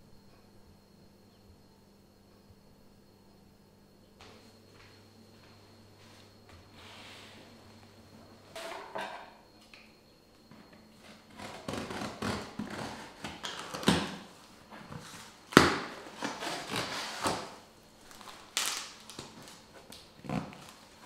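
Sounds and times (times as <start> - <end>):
cardboard crackling and rustling: 11.1 - 21.0
packing tape slit and pulled: 11.3 - 14.2, 15.5 - 17.6, 18.2 - 20.8.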